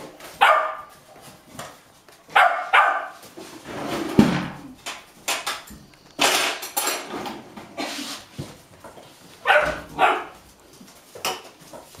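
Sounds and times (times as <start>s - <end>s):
puppies yapping: 0.4s - 1.0s, 2.3s - 3.2s, 9.4s - 10.4s.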